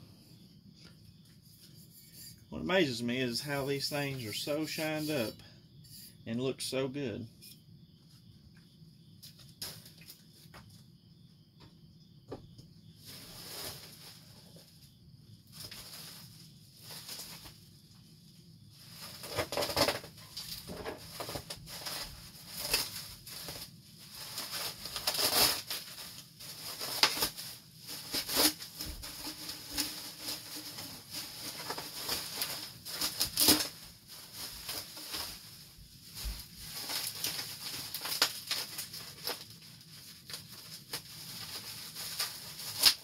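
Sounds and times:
bubble wrap crinkling: 0:18.9 - 0:43.0.

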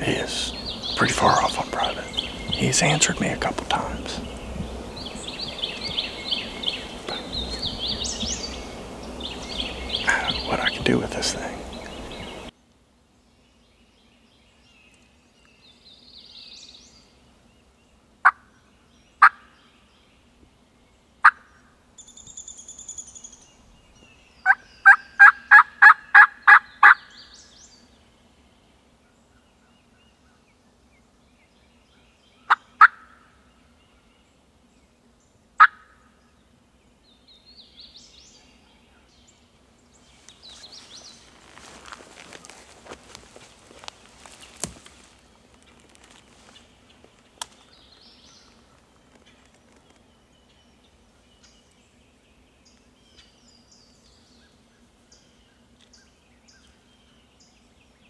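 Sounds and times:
songbird chirps: 0:00.0 - 0:58.0
turkey call yelps: 0:24.9 - 0:27.0, 0:35.6 - 0:35.9.

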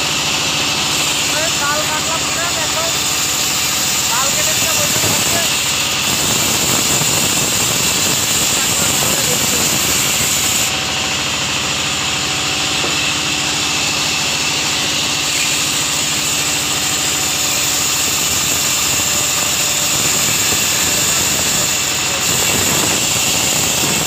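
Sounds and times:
sawmill saw cutting log: 0:00.0 - 0:24.0.

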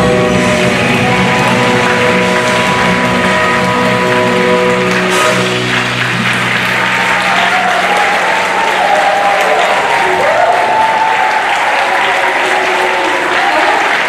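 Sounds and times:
band's held final chord: 0:00.0 - 0:07.8
audience applauding: 0:00.0 - 0:14.0.

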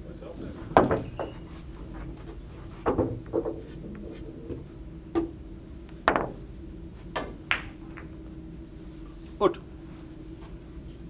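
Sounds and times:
steady low hum: 0:00.0 - 0:11.0
billiard balls knocking: 0:00.7 - 0:01.4, 0:02.8 - 0:05.4, 0:06.0 - 0:06.5, 0:07.1 - 0:08.2.

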